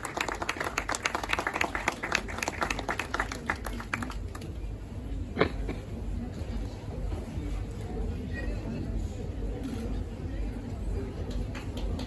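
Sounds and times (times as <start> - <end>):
hands clapping: 0.0 - 4.5, 11.2 - 12.0.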